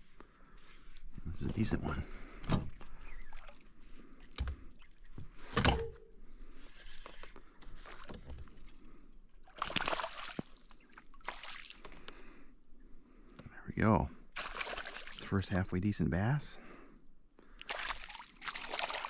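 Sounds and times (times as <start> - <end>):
water sloshing against hull: 1.3 - 12.2
fish splashing and thrashing: 3.0 - 5.9, 7.6 - 12.1, 14.3 - 15.4, 17.6 - 19.0.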